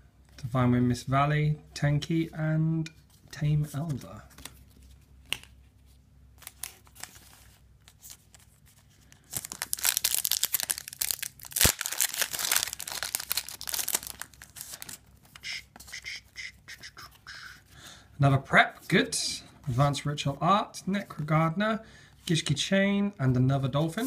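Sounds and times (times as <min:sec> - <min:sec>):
foil wrapper tearing and crinkling: 0:09.2 - 0:14.9.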